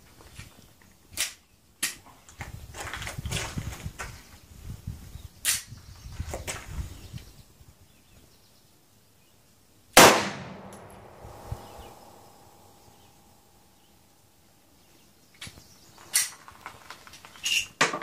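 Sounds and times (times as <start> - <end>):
handgun shot with echo: 10.0 - 12.7
sharp crack: 10.0 - 12.8.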